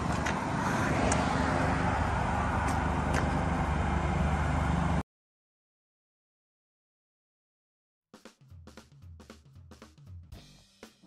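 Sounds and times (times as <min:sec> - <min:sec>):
road noise: 0:00.0 - 0:05.0
truck engine idling: 0:00.0 - 0:05.0.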